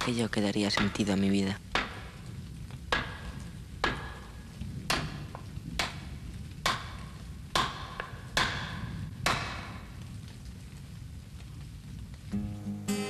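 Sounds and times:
chisel struck into wood: 2.9s - 3.2s, 3.8s - 4.2s, 4.9s - 5.2s, 6.6s - 7.0s, 7.6s - 9.7s.

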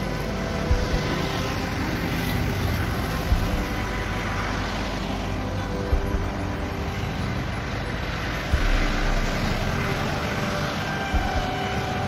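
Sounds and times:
road traffic rumble: 0.0s - 12.0s
short low thumps: 11.1s - 11.8s.

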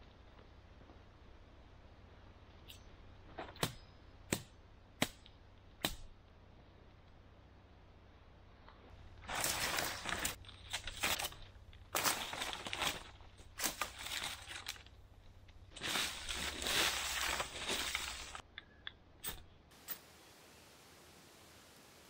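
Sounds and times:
dry leaves and sticks crunching: 9.1s - 18.4s.

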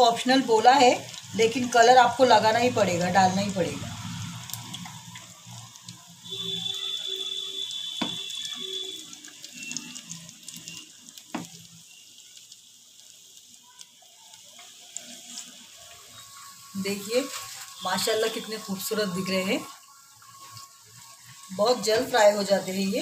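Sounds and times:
prawns sizzling in hot oil: 0.0s - 23.0s.

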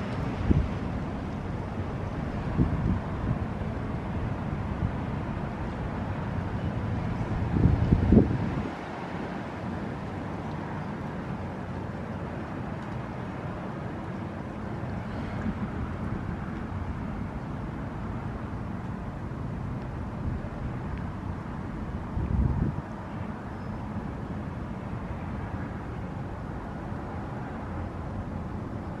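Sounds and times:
wind buffeting microphone: 0.0s - 9.1s, 15.3s - 23.0s.

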